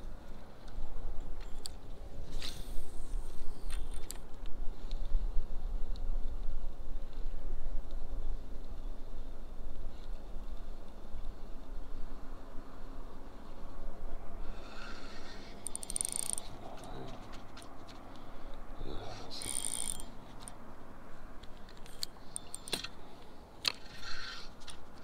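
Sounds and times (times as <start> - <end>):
wind rumble on microphone: 0.0 - 20.0
fishing reel whirring: 14.5 - 16.5, 19.3 - 20.2.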